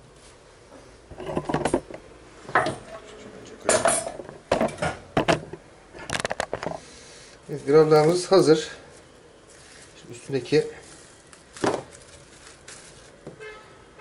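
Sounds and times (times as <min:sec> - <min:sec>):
plastic cling film crinkling: 0:07.5 - 0:13.3.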